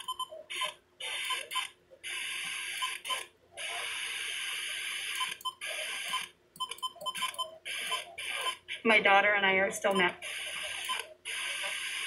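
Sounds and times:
radio key beeps: 0:05.2 - 0:08.6.

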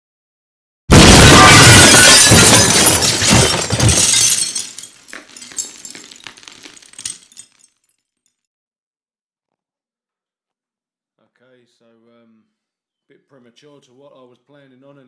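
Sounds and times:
glass smashing: 0:00.9 - 0:08.0
glass shards tinkling: 0:01.4 - 0:08.4.

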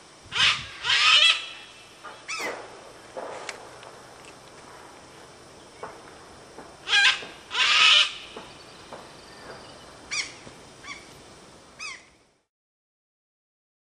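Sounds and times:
faint steady hiss: 0:00.0 - 0:12.5
birds calling: 0:00.3 - 0:02.6, 0:06.8 - 0:11.2, 0:11.8 - 0:12.2.

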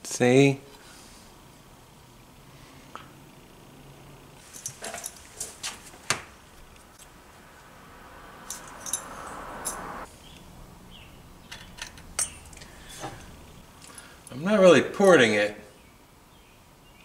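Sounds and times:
soft rubbing hiss: 0:00.7 - 0:01.6.

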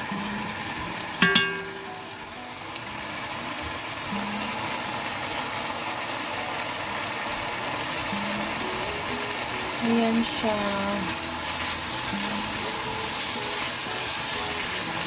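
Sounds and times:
meat sizzling in a pot: 0:00.0 - 0:15.0
spoon clinking against pot: 0:01.2 - 0:01.9.

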